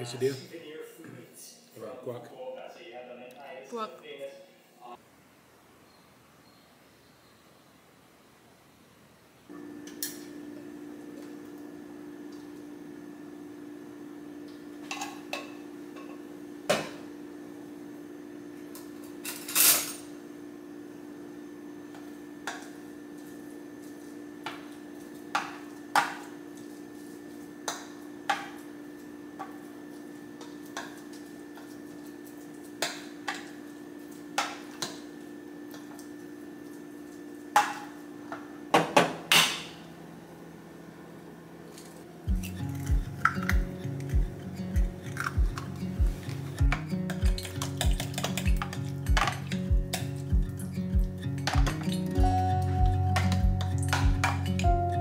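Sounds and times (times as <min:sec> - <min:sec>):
steady low hum: 0:39.9 - 0:55.0.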